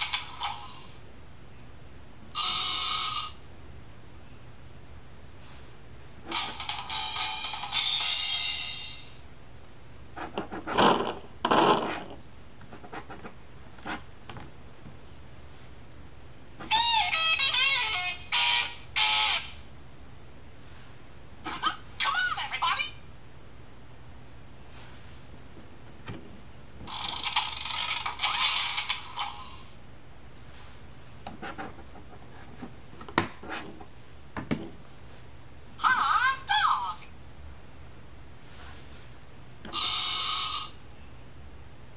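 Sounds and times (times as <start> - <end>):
electronic toy tune: 2.4 - 3.4.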